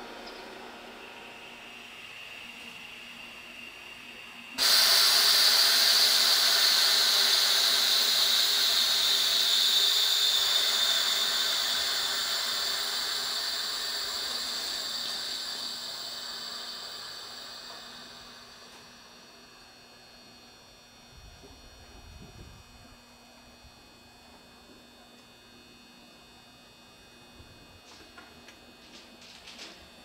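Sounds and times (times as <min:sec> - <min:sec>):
compressed air hissing from train: 0:01.2 - 0:18.9.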